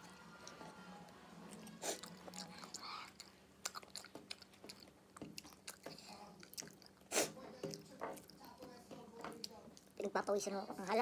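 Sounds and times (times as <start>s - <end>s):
chewing and crunching food: 0.0s - 10.6s.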